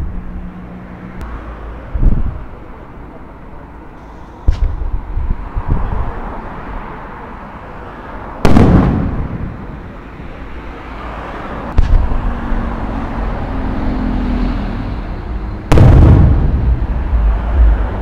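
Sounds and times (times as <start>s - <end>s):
rolling rumble echoing: 8.4s - 10.2s, 11.7s - 18.0s.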